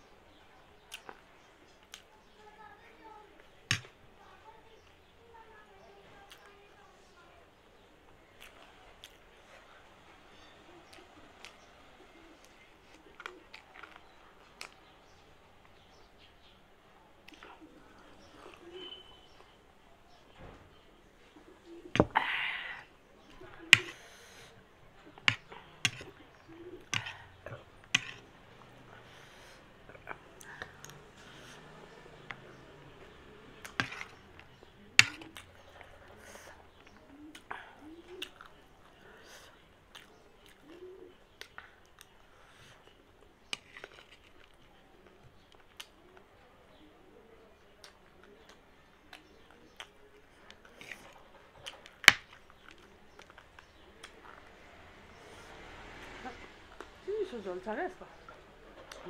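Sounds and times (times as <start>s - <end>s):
crunchy chewing: 29.9s - 46.3s.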